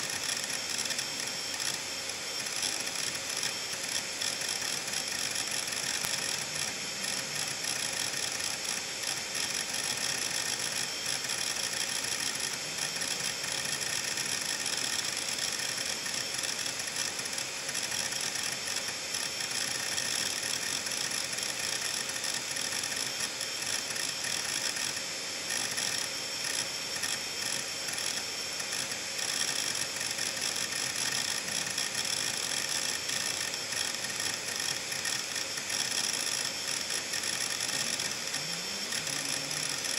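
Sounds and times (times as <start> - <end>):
spinning platters whine: 0.0 - 39.9
hard drive head clicking rattle: 2.4 - 39.9.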